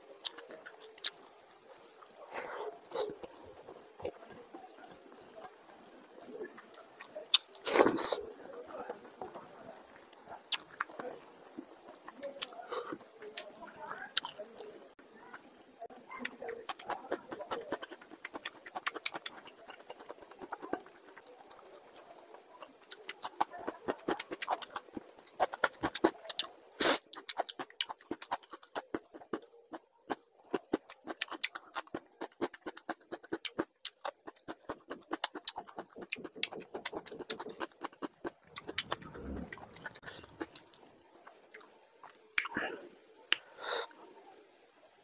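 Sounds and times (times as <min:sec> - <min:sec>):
man chewing and lip smacking: 0:16.3 - 0:23.5, 0:24.1 - 0:42.6.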